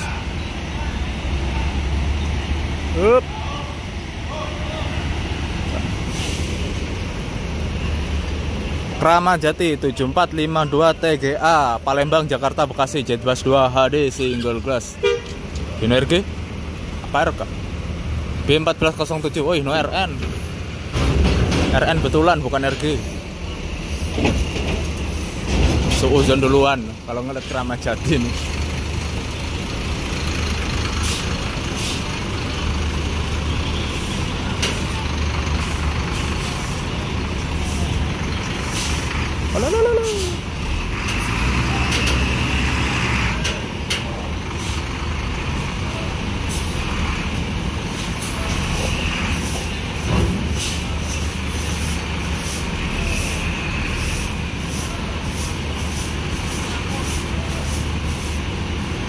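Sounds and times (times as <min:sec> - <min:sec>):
diesel engine running: 0:00.0 - 0:59.0
air brake hisses: 0:06.0 - 0:06.7.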